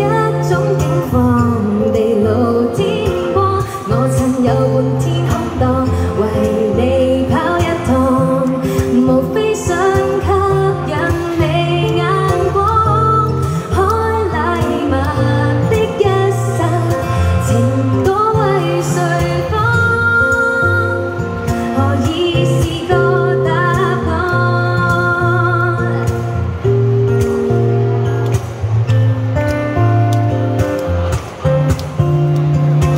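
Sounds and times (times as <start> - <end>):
woman singing: 0.0 - 26.4
strummed acoustic guitar: 0.0 - 32.9.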